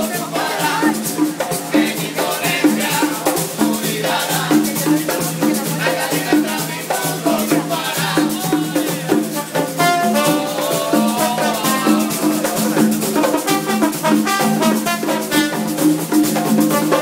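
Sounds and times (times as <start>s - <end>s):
voices singing: 0.0s - 15.8s
frame drums beating: 0.0s - 17.0s.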